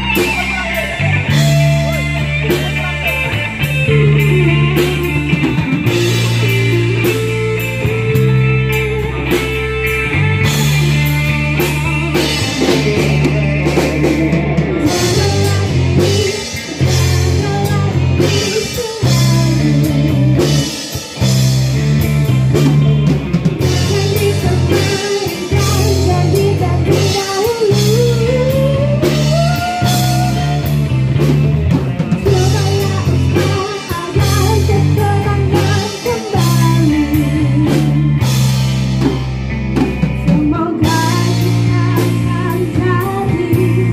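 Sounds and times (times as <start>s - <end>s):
bass guitar: 0.0s - 43.9s
drum kit beat: 0.0s - 43.9s
electric guitar: 0.0s - 43.9s
woman singing into a microphone: 11.6s - 20.9s, 23.6s - 30.7s, 32.2s - 38.4s, 40.2s - 43.9s.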